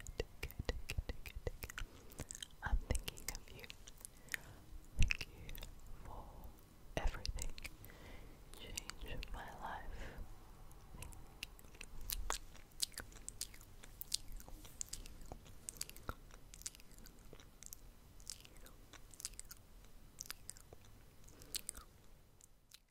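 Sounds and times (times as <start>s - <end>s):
lip and tongue clicks: 0.1s - 4.4s, 10.7s - 22.9s.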